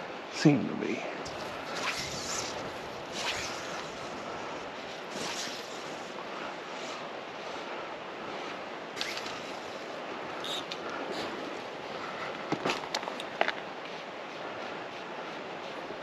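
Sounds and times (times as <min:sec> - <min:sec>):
brief swishes: 0:01.3 - 0:04.2, 0:05.1 - 0:05.9.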